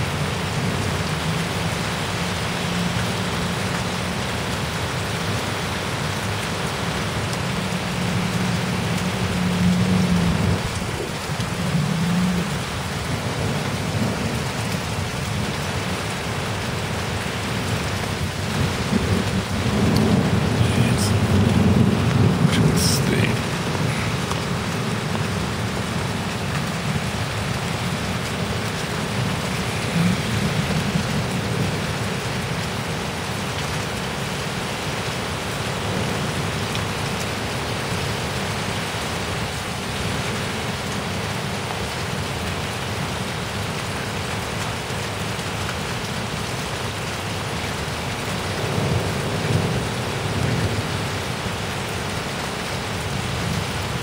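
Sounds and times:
heavy rain pouring: 0.0s - 54.0s
low thunder rumbles: 18.0s - 25.9s.

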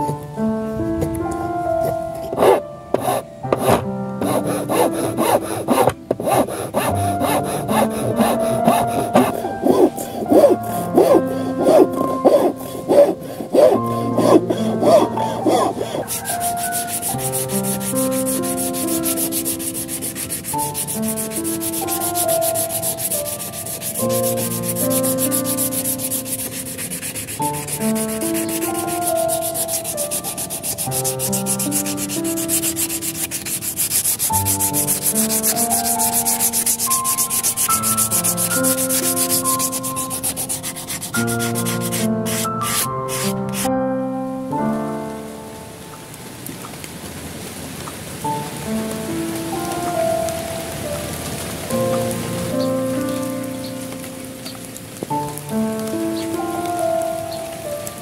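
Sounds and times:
soft background music: 0.0s - 58.0s
sandpaper rubbing on wood: 2.3s - 43.7s
steel file rasping on wood: 2.3s - 43.7s.

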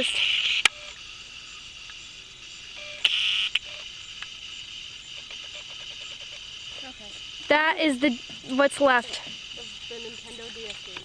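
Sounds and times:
crickets chirring: 0.0s - 11.0s.

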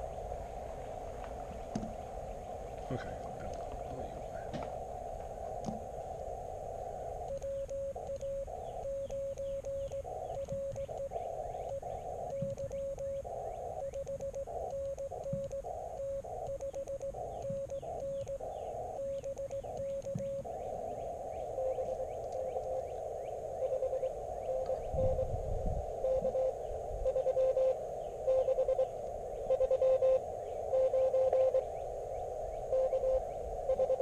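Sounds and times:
faint morse signal: 0.0s - 34.0s
receiver hiss: 0.0s - 34.0s
morse code tone: 7.2s - 25.4s, 26.0s - 31.7s, 32.6s - 34.0s.

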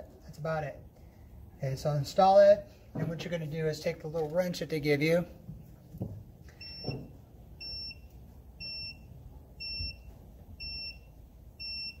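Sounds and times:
tire pressure monitor beeping: 6.5s - 12.0s.

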